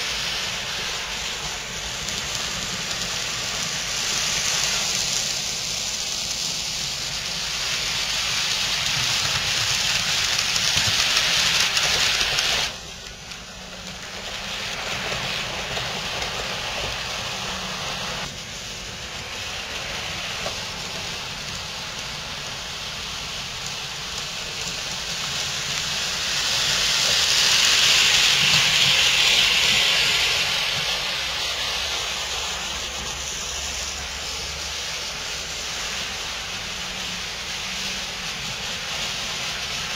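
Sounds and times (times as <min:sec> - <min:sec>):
model trains running on rails: 0:00.0 - 0:39.9.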